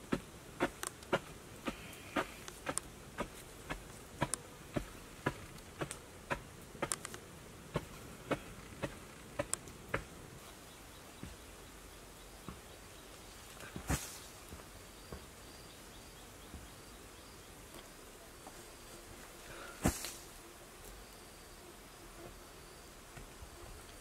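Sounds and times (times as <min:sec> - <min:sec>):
hands digging in sandy soil: 0:19.5 - 0:20.4.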